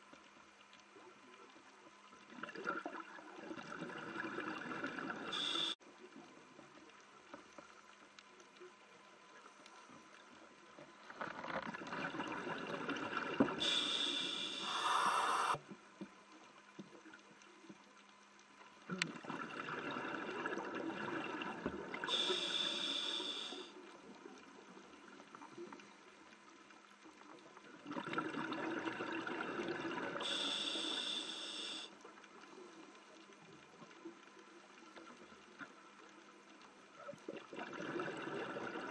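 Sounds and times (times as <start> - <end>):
faint underwater hiss: 0.7 - 11.4, 12.2 - 18.0, 18.6 - 27.9, 28.9 - 38.9
scuba regulator breathing bubbles: 13.6 - 15.6, 30.2 - 31.9.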